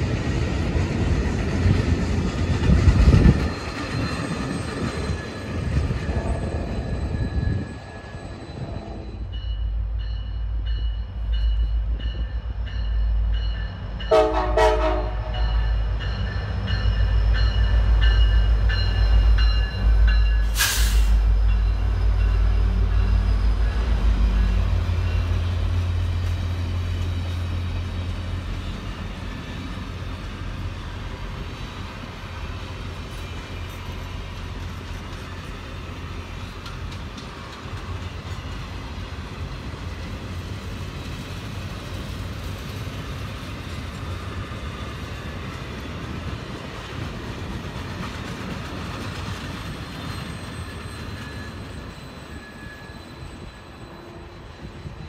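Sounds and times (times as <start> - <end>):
deep locomotive drone: 0.0 - 51.1
train wheels rumbling on rails: 0.0 - 55.0
faint high wheel squeal: 3.2 - 13.7, 15.4 - 25.8, 49.3 - 55.0.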